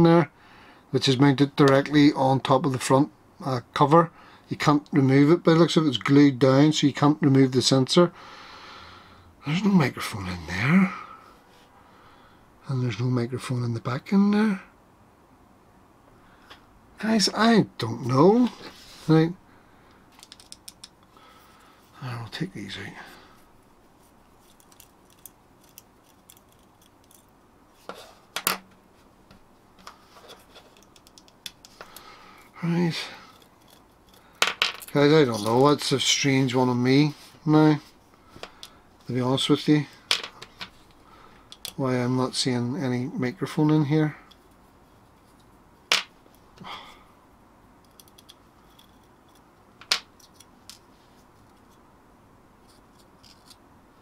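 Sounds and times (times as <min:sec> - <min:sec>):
soft rustle: 0:18.3 - 0:19.3, 0:21.2 - 0:31.0, 0:36.9 - 0:41.0, 0:50.2 - 0:51.9
fingers clicking and tapping parts: 0:20.2 - 0:21.0, 0:30.7 - 0:32.0.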